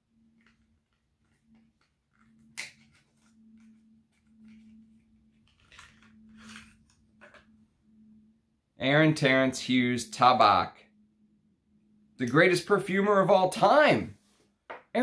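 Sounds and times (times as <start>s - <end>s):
faint steady hum: 0.0s - 14.6s
packaging rustling: 0.3s - 7.4s.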